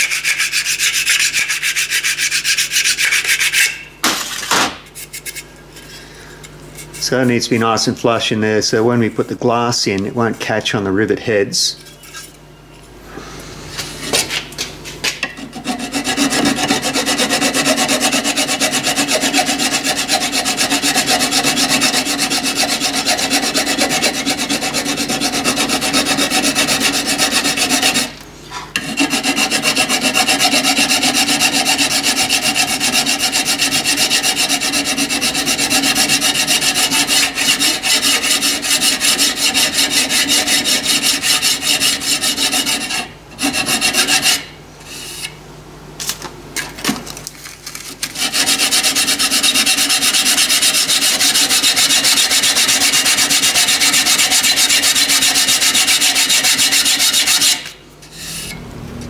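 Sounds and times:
file scraping metal: 0.0 - 3.9, 15.3 - 28.2, 28.8 - 45.4, 48.0 - 58.6.

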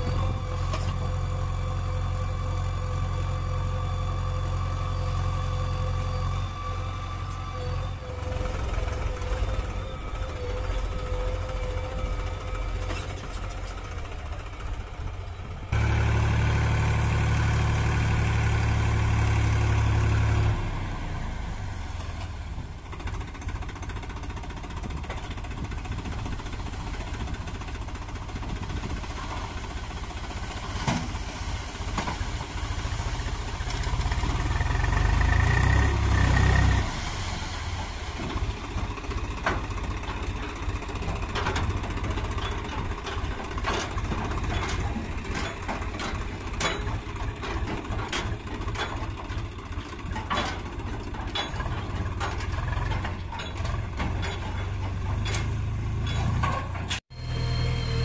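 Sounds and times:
backhoe diesel engine: 0.0 - 58.0
tractor engine running: 0.0 - 58.0
hydraulic high whine: 57.1 - 58.0.

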